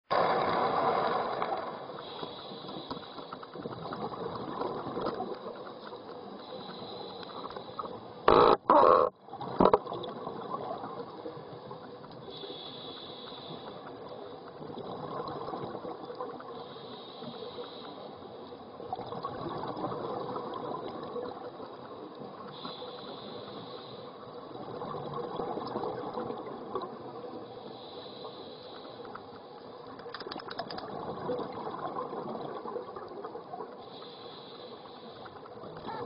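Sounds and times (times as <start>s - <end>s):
regulator breathing underwater: 2.0s - 3.5s, 6.4s - 8.5s, 12.3s - 13.9s, 16.5s - 18.2s, 22.5s - 24.2s, 27.6s - 29.2s, 33.8s - 35.5s
exhaled bubbles rushing: 18.9s - 21.4s.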